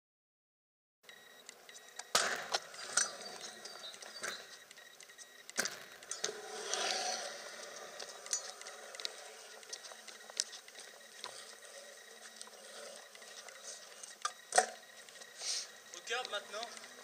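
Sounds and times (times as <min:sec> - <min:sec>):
scooter clacking on concrete: 0:05.5 - 0:10.8
scooter rolling scrape: 0:05.6 - 0:11.9
hiss of wheels: 0:15.4 - 0:15.7.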